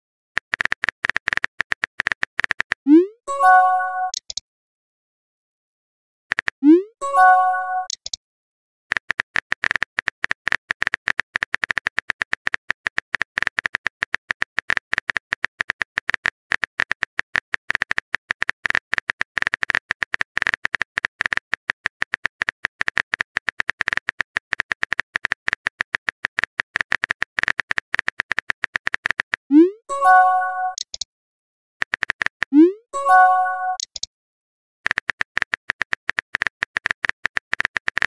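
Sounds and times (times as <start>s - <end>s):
phone keyboard clicks: 30.6s - 31.1s, 31.8s - 32.5s, 33.6s - 34.1s, 34.8s - 38.0s.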